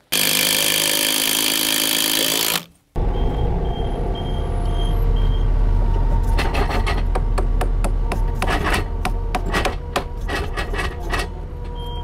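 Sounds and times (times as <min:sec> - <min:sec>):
skid loader engine and hydraulics: 0:02.3 - 0:12.0
warning alarm beeps: 0:03.0 - 0:06.2, 0:11.8 - 0:12.0.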